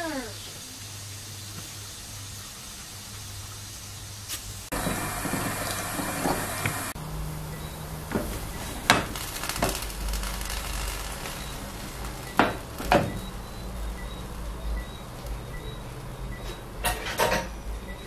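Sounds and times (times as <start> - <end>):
tap water running over metal pot: 0.0 - 7.0.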